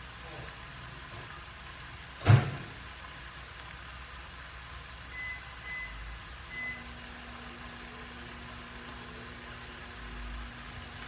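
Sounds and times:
steady hiss: 0:00.0 - 0:11.0
microwave oven beeps: 0:05.1 - 0:09.6.

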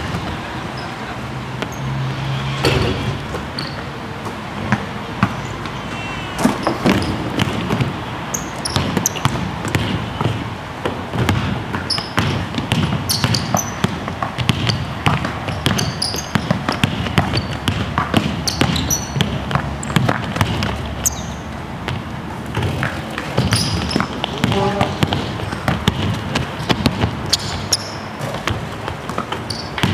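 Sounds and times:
basketballs bouncing on court floor: 0:00.0 - 0:00.6, 0:01.5 - 0:29.9
short high squeaks: 0:03.5 - 0:03.9, 0:21.0 - 0:21.4, 0:29.4 - 0:29.8.

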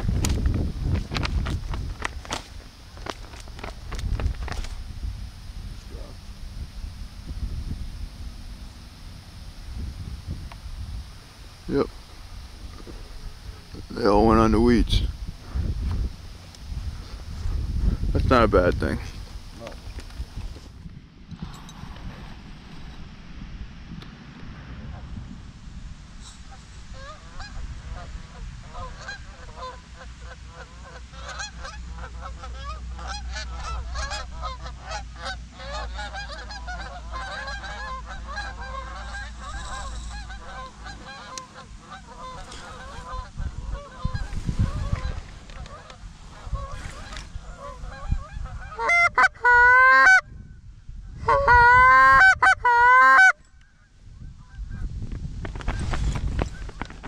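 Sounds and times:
geese honking in flight: 0:26.5 - 0:50.3, 0:51.2 - 0:54.8.

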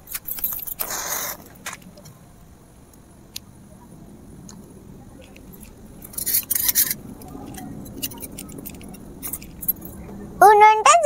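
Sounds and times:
match striking and flaring: 0:00.7 - 0:01.8.

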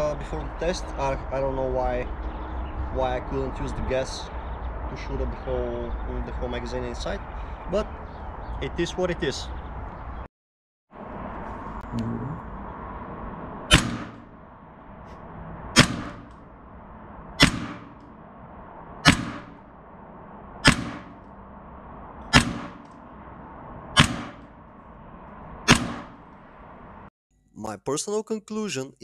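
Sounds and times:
airsoft gun shots: 0:13.7 - 0:14.3, 0:15.8 - 0:16.3, 0:17.4 - 0:18.0, 0:19.0 - 0:19.6, 0:20.6 - 0:21.2, 0:22.3 - 0:22.9, 0:24.0 - 0:24.5, 0:25.7 - 0:26.2.

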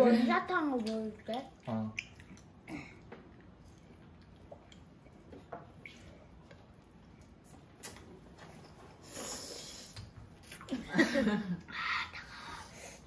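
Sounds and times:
child gulping and swallowing: 0:00.8 - 0:08.1.

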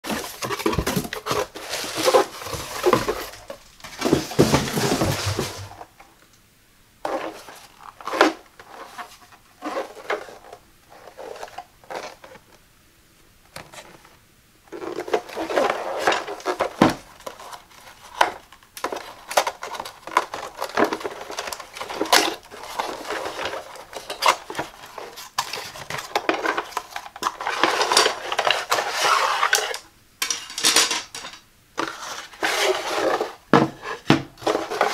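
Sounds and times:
hands tapping and scraping cardboard: 0:00.0 - 0:05.7
cardboard rustling and scraping: 0:00.0 - 0:06.0, 0:07.0 - 0:12.6, 0:13.6 - 0:29.8, 0:31.8 - 0:34.9.

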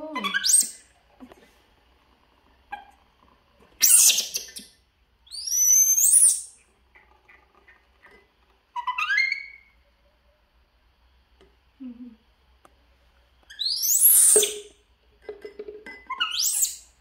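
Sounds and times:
monkey shrill squeal: 0:00.2 - 0:00.8, 0:03.8 - 0:04.6, 0:05.3 - 0:06.5, 0:08.8 - 0:09.8, 0:13.5 - 0:14.7, 0:16.1 - 0:16.9
monkeys whistling calls: 0:00.2 - 0:00.8, 0:03.8 - 0:06.5, 0:08.8 - 0:09.8, 0:13.5 - 0:14.7, 0:16.1 - 0:16.9.

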